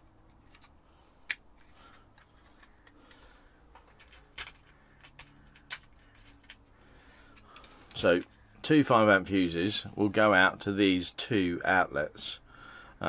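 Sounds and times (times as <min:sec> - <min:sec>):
plastic parts clicking and rattling: 0:00.0 - 0:09.4.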